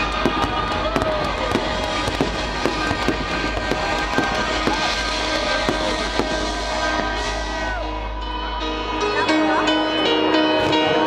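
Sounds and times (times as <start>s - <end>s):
fireworks bangs and crackles: 0.0s - 7.8s
loud music: 0.0s - 11.0s.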